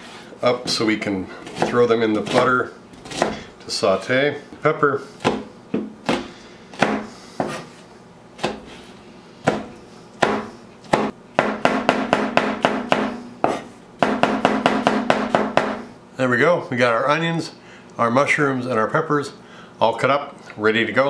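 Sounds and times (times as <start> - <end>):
knife chopping on plastic board: 1.4 - 3.5, 5.2 - 7.7, 8.4 - 8.8, 9.4 - 15.8.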